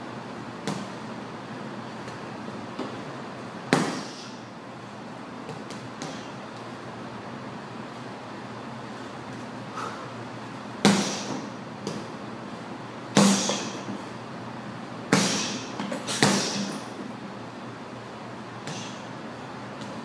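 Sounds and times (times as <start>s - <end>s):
gloves punching heavy bag: 3.7s - 4.2s, 10.8s - 12.1s, 13.2s - 13.8s, 15.1s - 16.8s.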